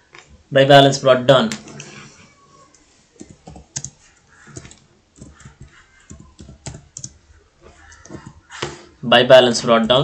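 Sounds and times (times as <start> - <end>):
typing on computer keyboard: 3.2 - 7.2.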